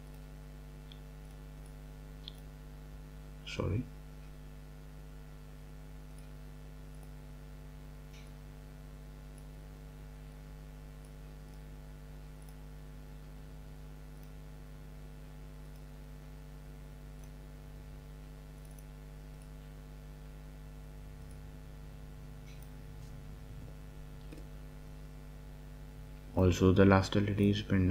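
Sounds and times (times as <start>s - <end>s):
computer mouse clicks: 0.0s - 2.5s, 6.1s - 7.3s, 8.1s - 8.4s, 11.0s - 11.7s, 12.3s - 12.7s, 14.2s - 14.4s, 15.6s - 15.9s, 18.6s - 19.6s, 22.4s - 23.2s
steady low hum: 0.0s - 27.9s.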